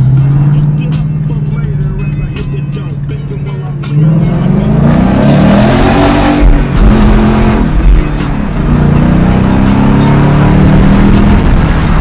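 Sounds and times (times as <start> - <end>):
car exhaust revving: 4.0 - 12.0.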